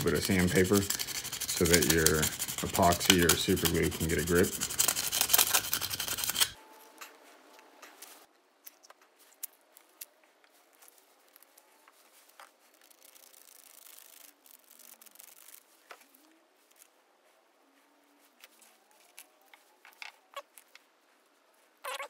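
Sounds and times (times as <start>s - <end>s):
sandpaper rubbing on metal tube: 0.0s - 6.6s.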